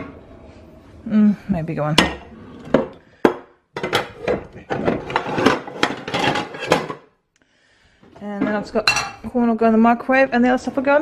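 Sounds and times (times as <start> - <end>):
pots and pans clattering: 2.0 - 7.1.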